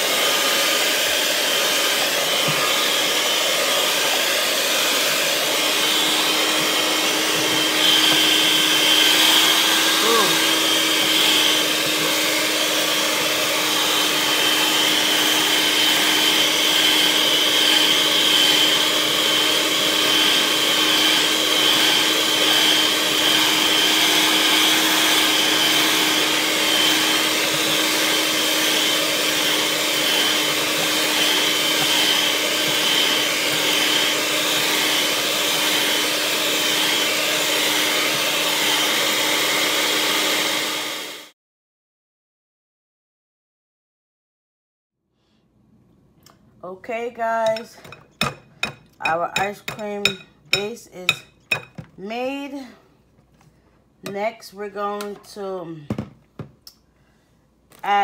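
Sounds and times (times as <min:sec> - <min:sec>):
electric mixer whining: 0:00.0 - 0:41.4.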